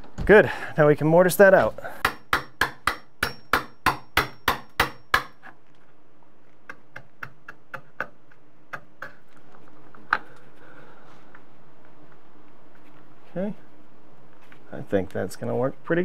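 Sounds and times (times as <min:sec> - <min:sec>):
hammer tapping chisel: 0:06.6 - 0:09.2.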